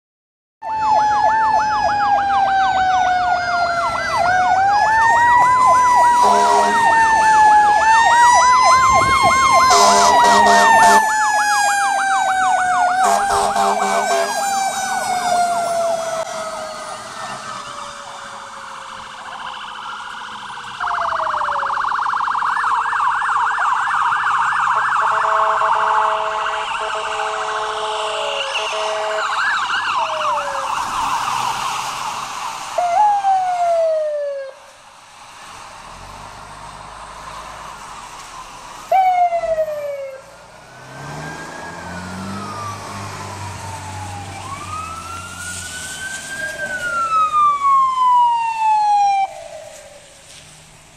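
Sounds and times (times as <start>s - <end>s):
yelp siren: 0.6s - 34.7s, 37.3s - 50.3s
wailing siren: 0.6s - 35.0s, 35.9s - 50.6s
fire engine horn blasts: 5.4s - 7.7s, 8.8s - 11.5s, 12.8s - 15.8s, 24.7s - 29.6s.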